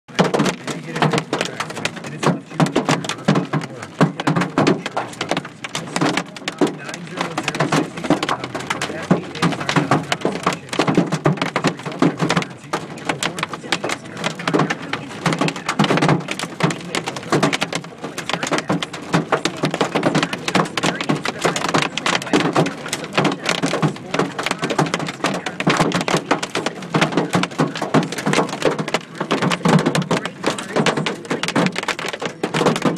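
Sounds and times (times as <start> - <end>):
hail hitting car roof: 0.1 - 32.9.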